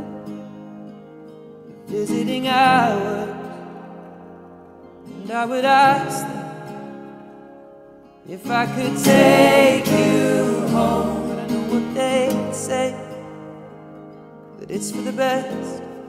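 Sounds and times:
slow gentle music: 5.9 - 16.0.

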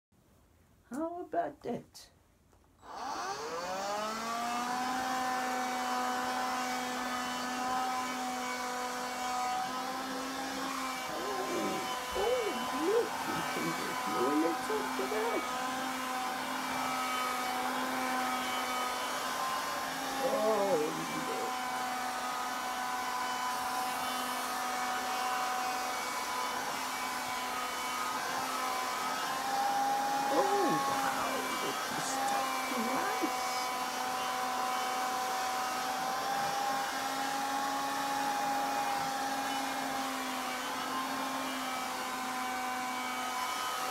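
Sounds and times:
handheld vacuum cleaner running: 2.8 - 43.9.

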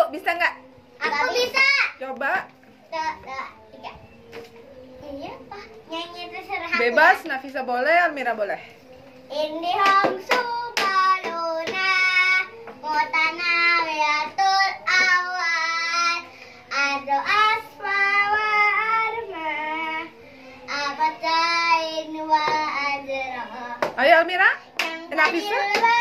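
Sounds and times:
girl singing unaccompanied: 0.6 - 7.7, 8.6 - 26.0.

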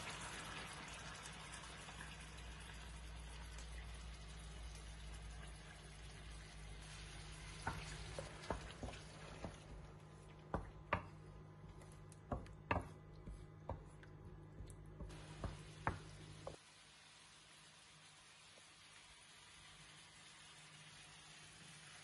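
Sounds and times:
wooden spoon stirring sauce: 7.1 - 16.6
spoon knocking against pan: 12.2 - 13.9.

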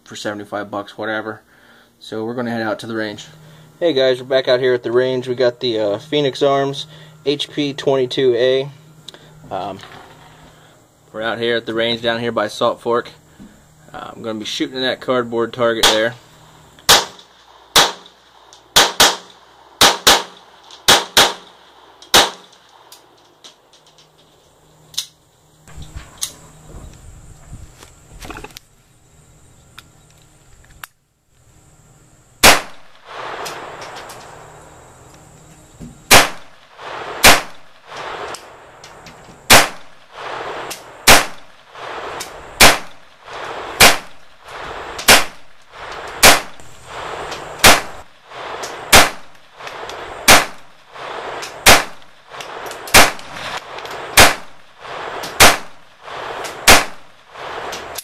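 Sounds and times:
pistol shots echoing: 15.8 - 16.1, 16.8 - 23.2, 32.4 - 34.5, 36.1 - 38.4, 39.5 - 58.0.

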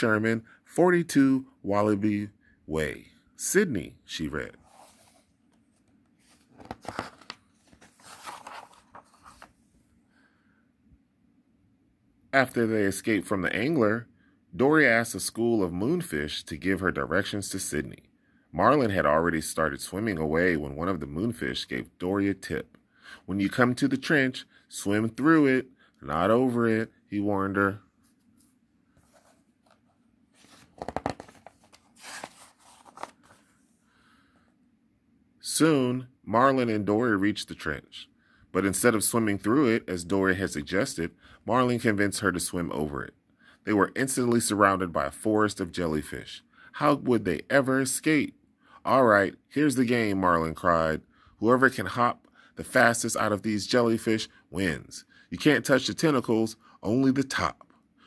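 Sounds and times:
paper page rustling: 4.6 - 9.6, 28.0 - 33.7.

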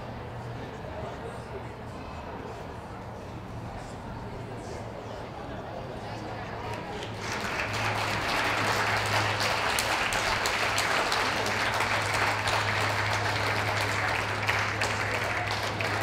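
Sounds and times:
audience applauding: 6.7 - 16.0.

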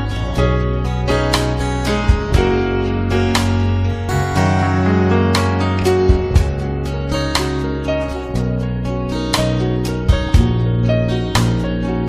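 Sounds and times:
acoustic guitar strumming: 4.1 - 8.0.

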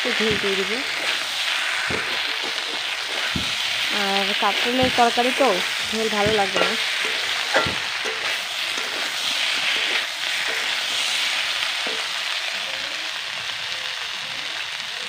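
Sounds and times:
curry sizzling in a pan: 0.0 - 15.0
metal spatula scraping a pan: 0.1 - 12.2.

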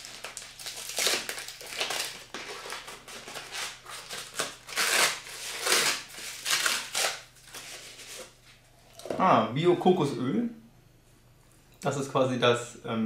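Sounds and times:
packing paper crinkling: 0.0 - 8.4.

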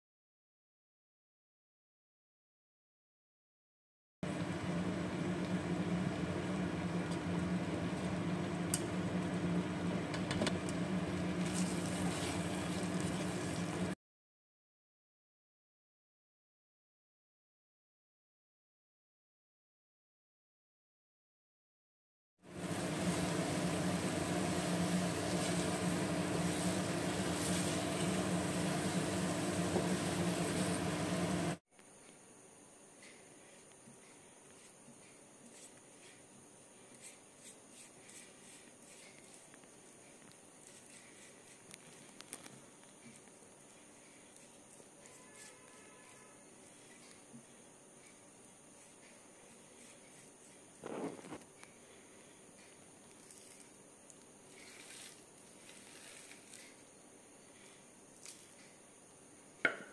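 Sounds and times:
appliance fan motor humming: 4.2 - 14.0, 22.4 - 31.6
electric cooktop humming: 4.2 - 14.0, 22.4 - 31.6, 37.0 - 59.9.

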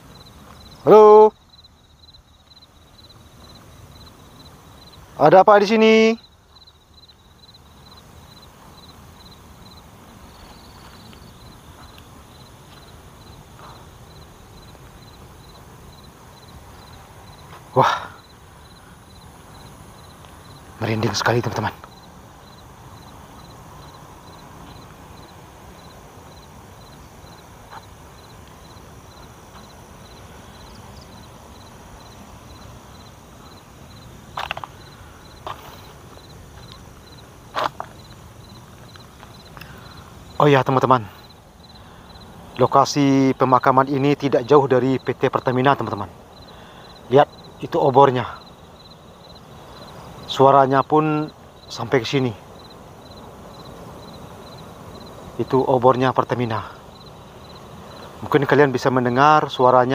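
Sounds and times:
cricket chirping: 0.0 - 59.9
footsteps on ground: 10.3 - 13.9, 16.7 - 17.8, 27.6 - 28.7, 29.4 - 29.9, 34.3 - 39.6.

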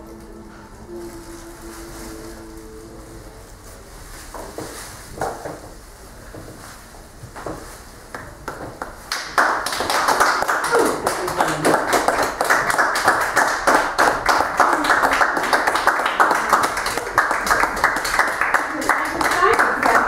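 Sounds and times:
audience applauding: 8.4 - 20.0.

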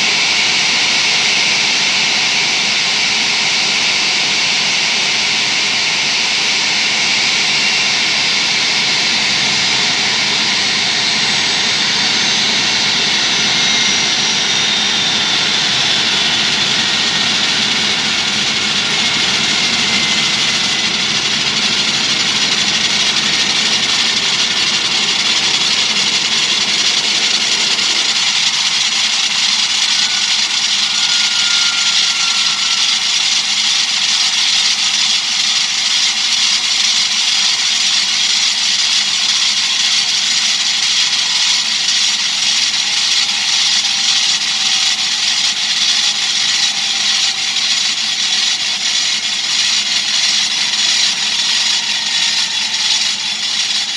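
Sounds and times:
jet engine roar and whine: 0.0 - 53.9
faint falling whining tones: 9.9 - 34.6.

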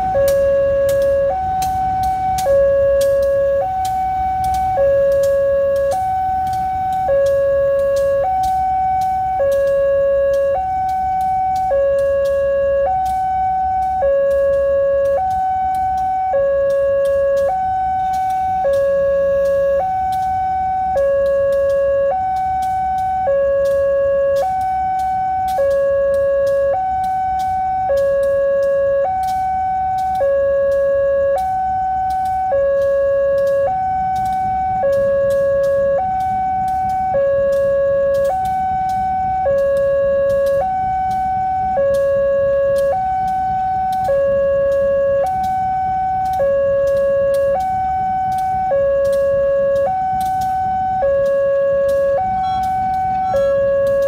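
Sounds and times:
electronic two-tone warning alarm: 0.0 - 54.0.

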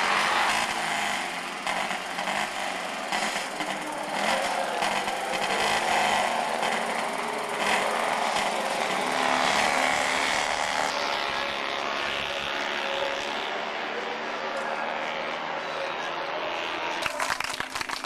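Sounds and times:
race car engine running hard: 0.0 - 18.0.

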